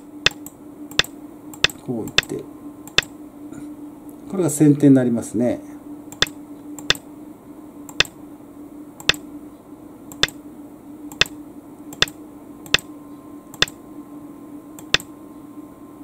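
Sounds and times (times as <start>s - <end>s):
faint steady hum: 0.0s - 16.0s
sharp single clicks: 0.2s - 3.1s, 6.1s - 7.1s, 7.9s - 8.2s, 9.0s - 9.3s, 10.1s - 10.4s, 11.1s - 11.4s, 12.0s - 12.9s, 13.6s - 13.8s, 14.8s - 15.1s.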